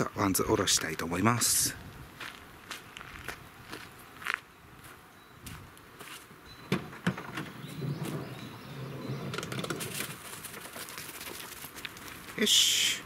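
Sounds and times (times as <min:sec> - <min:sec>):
faint birds chirping: 0:03.9 - 0:11.2
sliding door clunk and sliding: 0:06.7 - 0:10.2
dogs scrambling: 0:09.4 - 0:12.3
footsteps on dry leaves: 0:09.8 - 0:12.4.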